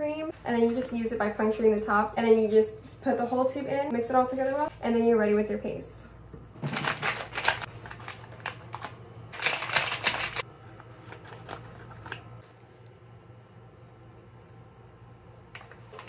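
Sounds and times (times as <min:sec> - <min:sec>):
plastic gloves rustling: 0:00.3 - 0:05.6, 0:06.6 - 0:12.9, 0:14.0 - 0:16.0
powder packet crinkling: 0:06.6 - 0:12.6.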